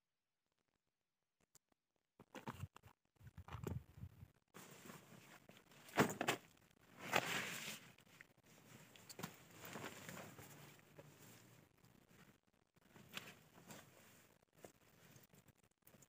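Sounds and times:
fabric rustling: 4.6s - 6.2s, 6.9s - 15.4s.

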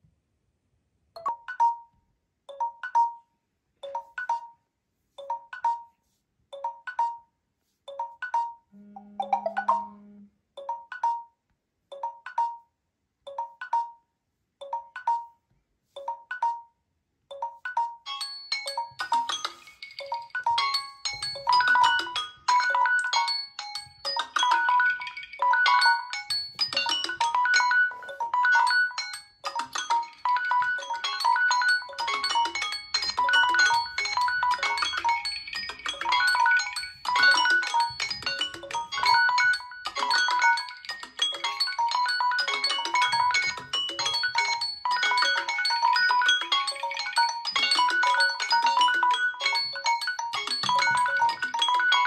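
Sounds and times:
melodic phone alarm tune: 1.2s - 4.6s, 6.6s - 7.3s, 7.9s - 12.7s, 16.0s - 52.0s
low phone buzz: 8.8s - 10.4s
phone timer chime: 17.3s - 52.0s.

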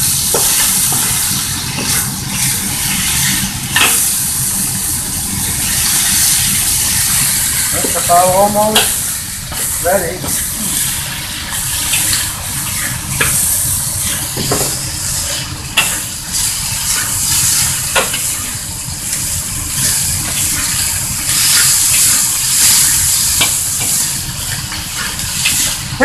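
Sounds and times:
chicken sizzling in hot oil: 0.0s - 26.0s
spatula scraping a wok: 9.5s - 18.3s.

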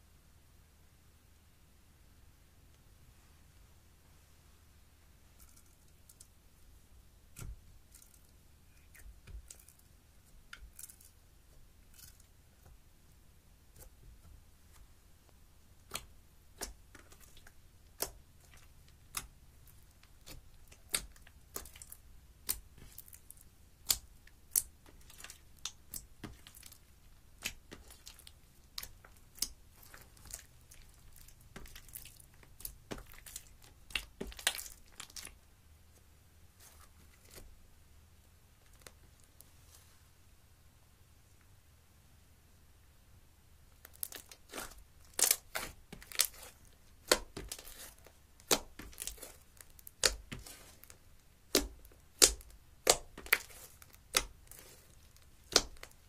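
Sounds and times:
slime popping and crackling: 15.8s - 35.4s, 43.8s - 56.0s.

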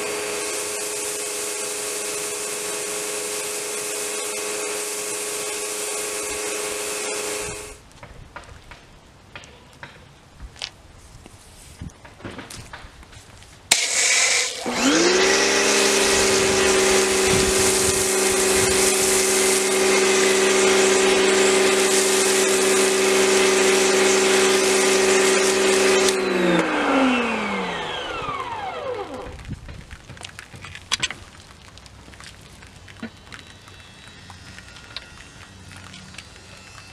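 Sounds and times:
pressure washer spray hissing: 0.0s - 7.8s, 13.7s - 29.3s
pump motor whine: 0.0s - 7.8s, 13.7s - 29.6s, 32.2s - 36.9s.

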